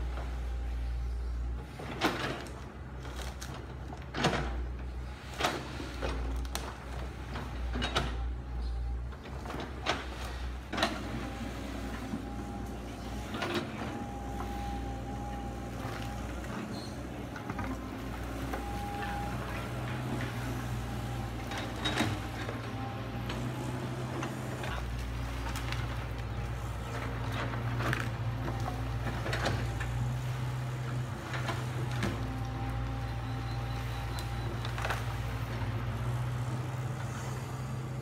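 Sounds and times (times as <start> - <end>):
diesel engine droning: 0.0 - 38.0.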